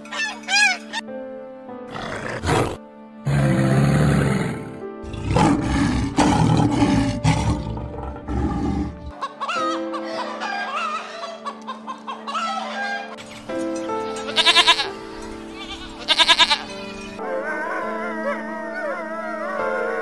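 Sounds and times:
background music: 0.0s - 20.0s
lion roaring: 1.9s - 9.1s
hens clucking: 9.0s - 17.2s.

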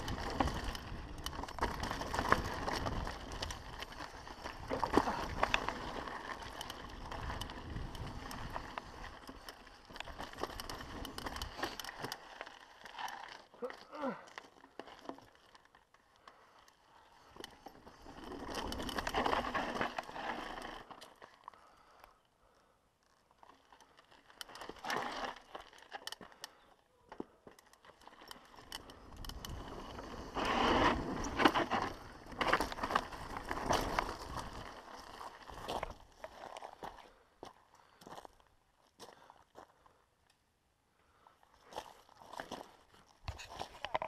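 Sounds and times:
bike rattling over bumps: 0.0s - 13.6s, 17.2s - 22.0s, 27.2s - 36.4s
bike tyres crunching over dirt: 0.0s - 40.0s, 41.1s - 44.0s.

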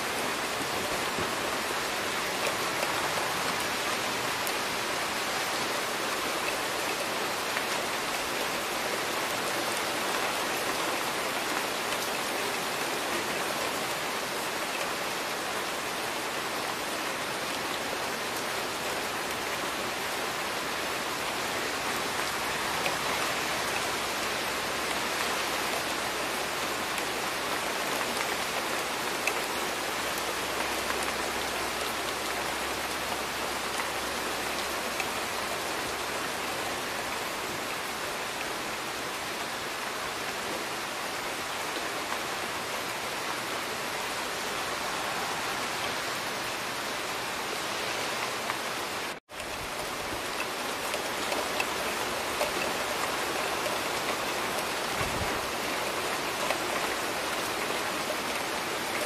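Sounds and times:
steady rain falling: 0.0s - 59.0s.

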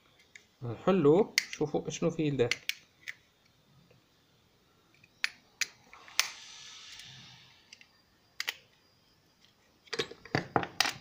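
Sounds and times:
plastic clicks: 7.7s - 8.7s.

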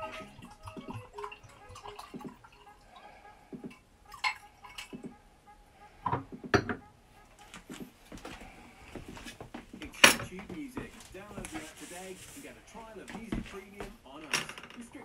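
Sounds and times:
glasses clinking: 0.0s - 2.8s, 3.5s - 5.1s, 6.0s - 6.9s, 9.8s - 10.4s
wine pouring into glasses: 0.0s - 5.1s.

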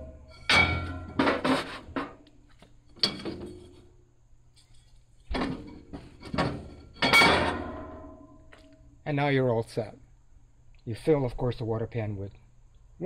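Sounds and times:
metal grill grates clanking: 0.0s - 2.2s, 5.3s - 8.0s.

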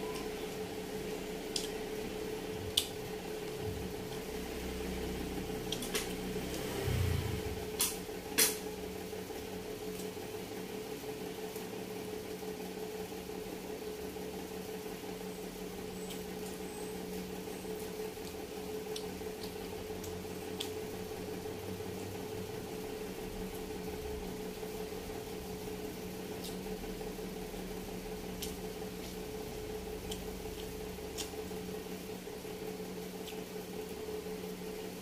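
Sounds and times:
low machine hum: 0.0s - 35.0s
soft chewing: 28.3s - 31.5s.

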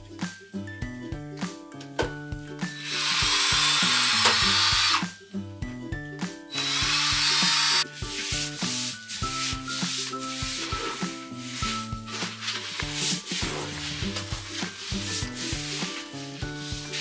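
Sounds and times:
background music: 0.0s - 17.0s
power drill whining: 2.8s - 5.1s, 6.5s - 7.9s.

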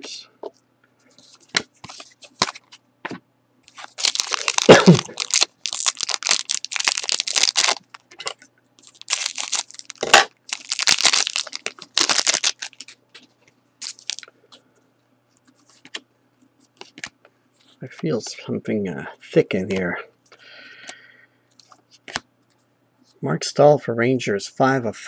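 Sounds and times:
foil wrapper crinkling: 3.7s - 13.0s, 13.8s - 14.3s.

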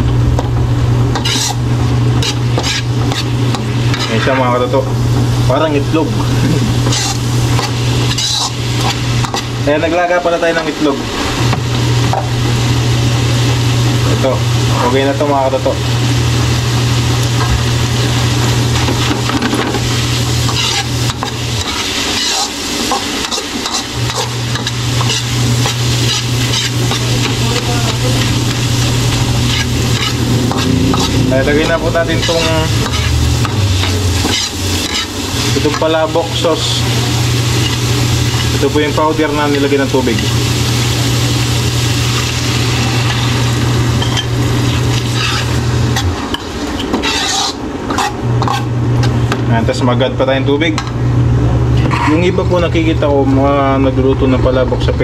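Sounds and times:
low hum: 0.0s - 4.0s, 24.0s - 46.5s
steady low hum: 0.0s - 55.0s
metal ladle scraping a wok: 1.1s - 1.6s, 2.2s - 4.5s, 6.8s - 9.5s, 20.4s - 27.4s, 28.2s - 35.8s, 44.0s - 49.2s
light frying sizzle: 1.1s - 49.4s.

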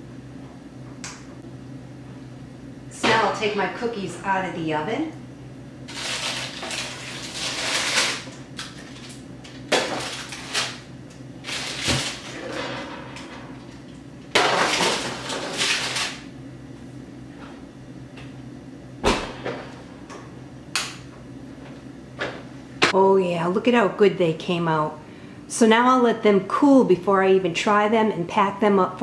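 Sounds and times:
parchment paper rustling: 5.9s - 10.8s.

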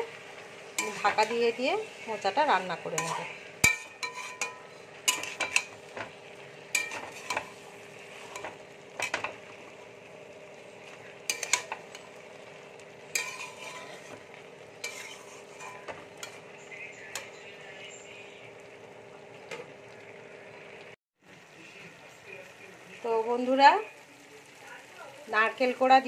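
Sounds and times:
faint sizzle from pan: 0.0s - 26.0s
metal spatula scraping a metal pan: 0.7s - 6.1s, 6.7s - 9.4s, 11.2s - 12.2s, 13.1s - 17.3s.

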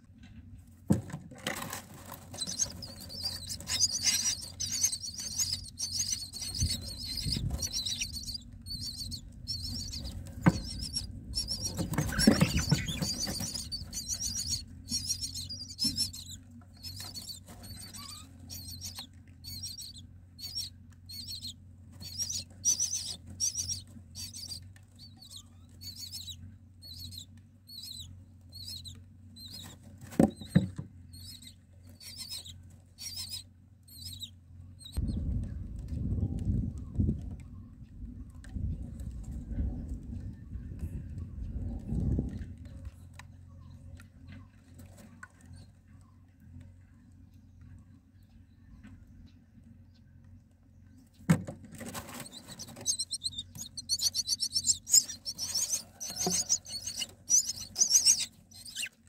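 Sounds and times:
wings fluttering: 0.9s - 43.2s, 51.1s - 59.0s
nestlings begging calls: 2.2s - 35.0s, 52.0s - 59.0s.

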